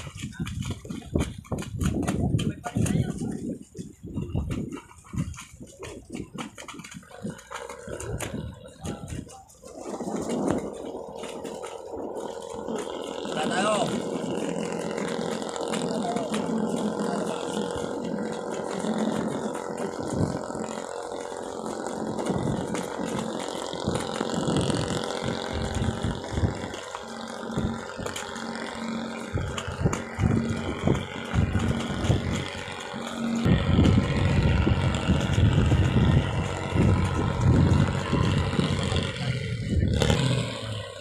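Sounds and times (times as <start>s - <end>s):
boat engine running: 0.0s - 41.0s
wind buffeting microphone: 0.0s - 41.0s.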